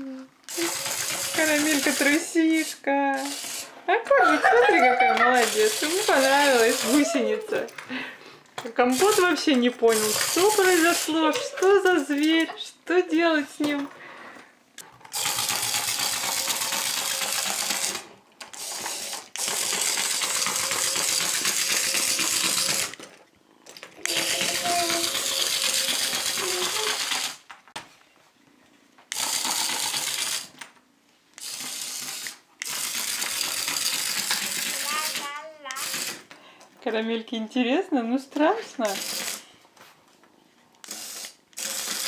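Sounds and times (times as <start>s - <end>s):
toy motor and gears buzzing: 0.5s - 4.4s, 5.0s - 7.7s, 8.8s - 12.4s, 15.1s - 23.0s, 24.0s - 27.5s, 29.1s - 30.6s, 31.4s - 36.3s, 38.8s - 39.5s, 40.8s - 42.0s.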